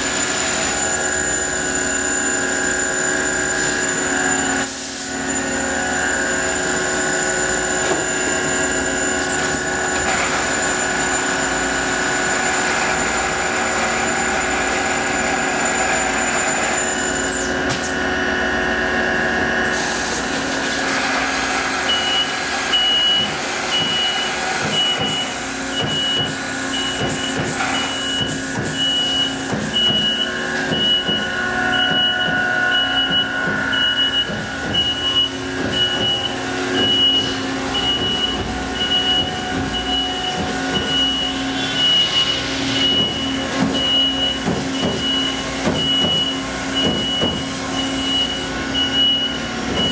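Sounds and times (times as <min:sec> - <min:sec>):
machine hum: 0:21.0 - 0:49.9
high warning beeps: 0:21.8 - 0:49.9.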